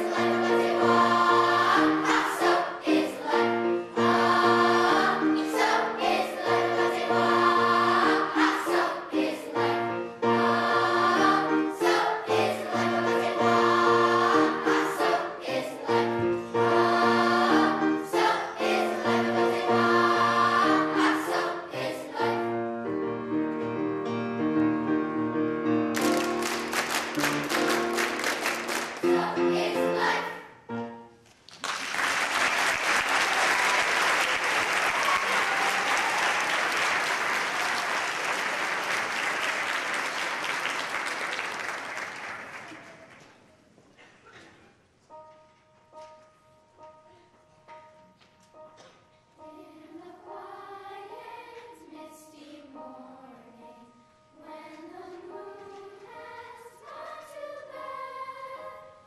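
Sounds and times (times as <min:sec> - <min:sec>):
children's choir singing: 0:00.0 - 0:23.6, 0:26.0 - 0:31.2, 0:32.8 - 0:43.4, 0:46.8 - 0:59.0
piano accompaniment: 0:00.0 - 0:31.2, 0:45.1 - 0:59.0
audience applause: 0:26.0 - 0:29.0, 0:31.6 - 0:43.2.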